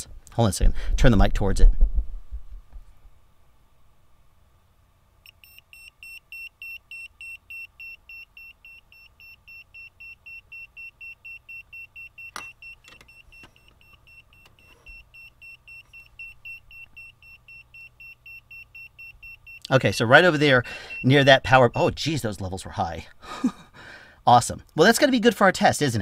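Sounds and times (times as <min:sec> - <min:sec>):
meter beeping fast: 0:05.3 - 0:22.2.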